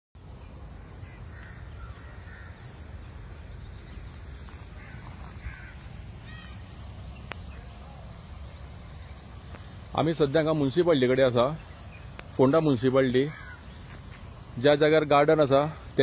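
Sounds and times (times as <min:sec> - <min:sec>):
crows cawing: 0:01.0 - 0:02.9, 0:04.7 - 0:06.7, 0:13.2 - 0:13.9.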